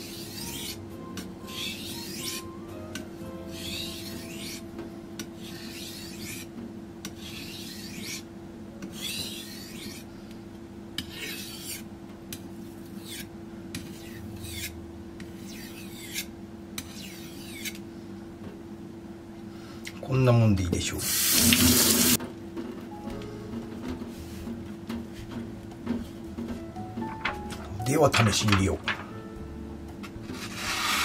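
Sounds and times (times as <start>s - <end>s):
knife scraping on whetstone: 0.0s - 0.8s, 1.4s - 2.5s, 3.4s - 4.7s, 5.4s - 6.5s, 7.1s - 8.3s, 8.9s - 10.1s, 11.0s - 11.9s, 12.9s - 17.8s, 30.4s - 31.0s.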